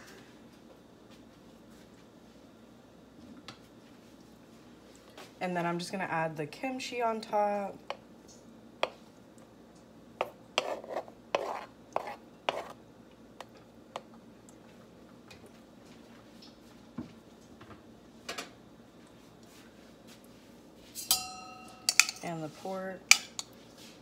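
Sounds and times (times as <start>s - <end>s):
knife scraping cutting board: 10.6s - 12.8s.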